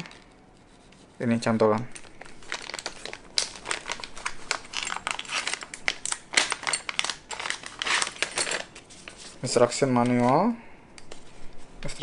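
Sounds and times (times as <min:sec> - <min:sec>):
plastic bag crinkling: 0:01.9 - 0:10.5.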